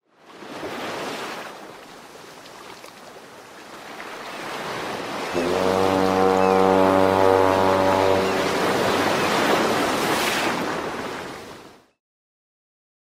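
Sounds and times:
ocean waves rushing: 0:03.9 - 0:11.8
deep steady horn note: 0:05.3 - 0:09.7.

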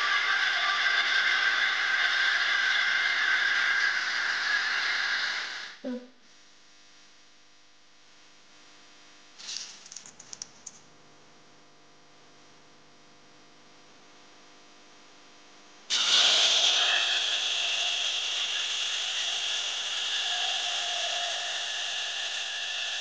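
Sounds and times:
faint steady hum: 0:00.0 - 0:23.0
paste sizzling in hot oil: 0:15.9 - 0:23.0.

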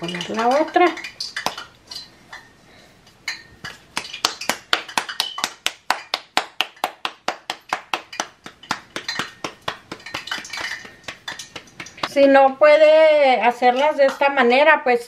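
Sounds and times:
hands patting dough: 0:03.6 - 0:12.4.

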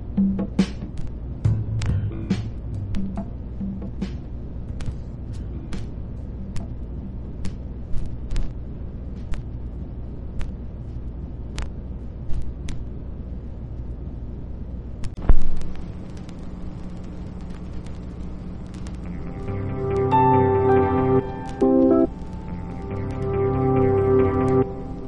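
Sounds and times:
low street rumble: 0:00.0 - 0:25.0
steady low hum: 0:00.0 - 0:25.0
sharp clicks: 0:15.0 - 0:20.2.

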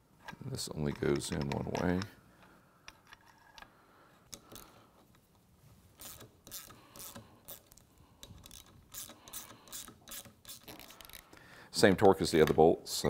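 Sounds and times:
hand ratchet clicking: 0:06.0 - 0:11.4.

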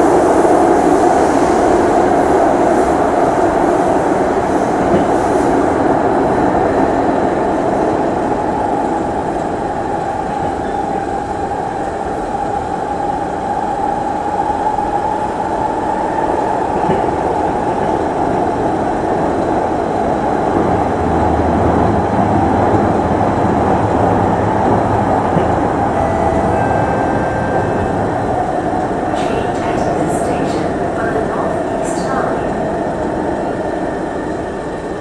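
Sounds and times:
train wheels rolling on rail: 0:00.0 - 0:35.0
faint high tones: 0:25.9 - 0:28.6.

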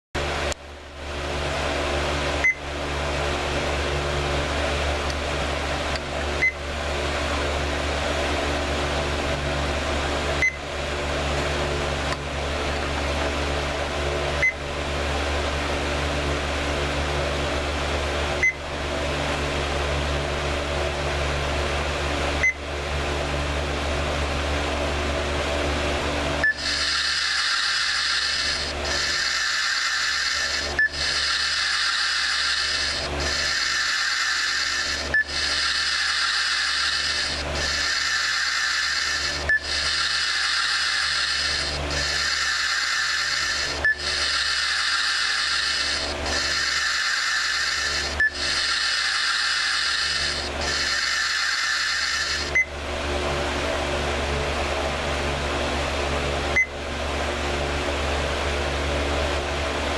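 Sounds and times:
steady low electronic hum: 0:00.2 - 0:57.5
wavering electronic tone: 0:26.5 - 0:52.6.

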